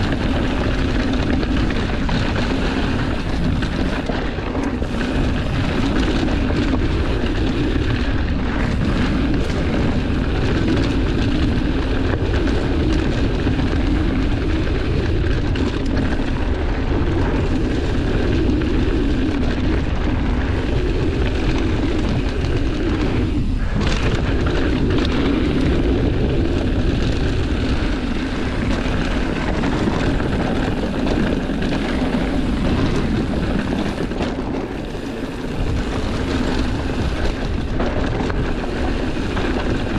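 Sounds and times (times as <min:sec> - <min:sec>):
tyres rumbling over dirt: 0:00.0 - 0:39.9
wind rushing on microphone: 0:00.0 - 0:39.9.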